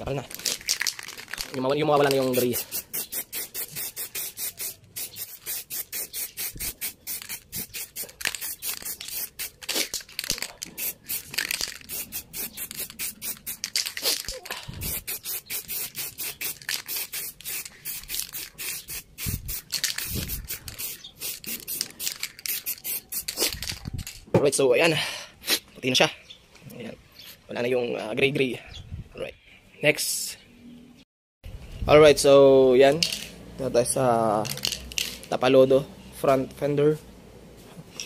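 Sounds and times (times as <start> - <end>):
spray can hissing spurts: 0.3 - 24.2.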